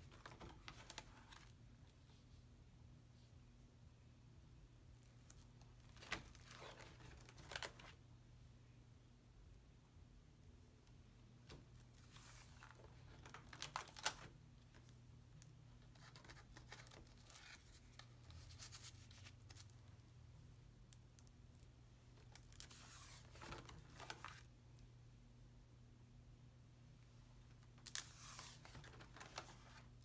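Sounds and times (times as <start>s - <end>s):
paper rustling and crinkling: 0.0s - 1.6s, 5.3s - 8.0s, 11.5s - 14.9s, 15.8s - 19.8s, 22.2s - 24.5s, 27.8s - 30.0s
faint steady hum: 0.0s - 30.0s.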